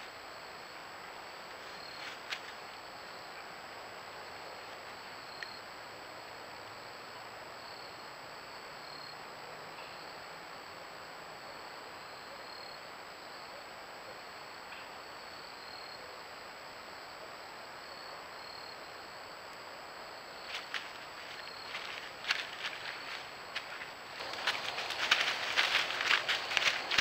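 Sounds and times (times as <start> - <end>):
insect trills: 0.0 - 27.0
microphone hiss: 0.0 - 27.0
crackles in dry leaves: 1.4 - 3.5, 20.3 - 27.0
high electronic whine: 18.4 - 27.0.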